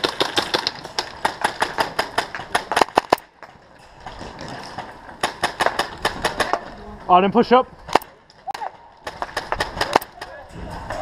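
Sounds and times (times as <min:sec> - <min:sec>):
airsoft gun rapid shots: 0:00.0 - 0:03.2, 0:05.2 - 0:06.6, 0:07.9 - 0:10.3.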